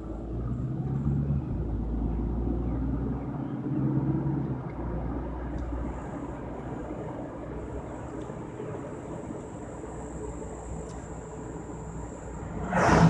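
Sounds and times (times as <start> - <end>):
car engine hum: 0.0 - 13.0
road noise: 0.0 - 13.0.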